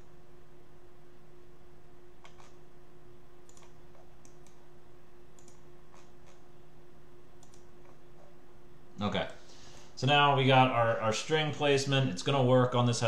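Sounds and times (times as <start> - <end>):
low electrical hum: 0.0 - 13.0
computer mouse clicks: 2.2 - 2.6, 3.5 - 4.6, 5.4 - 6.4, 7.4 - 8.3.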